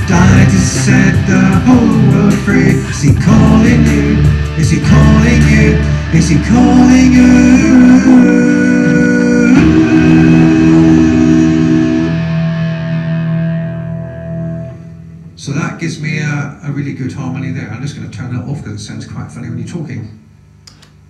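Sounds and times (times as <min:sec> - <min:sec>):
man singing with harmony: 0:00.0 - 0:12.4.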